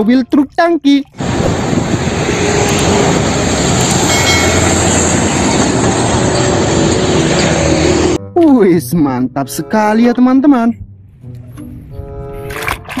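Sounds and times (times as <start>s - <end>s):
truck engine and tyre rumble: 1.1s - 8.2s.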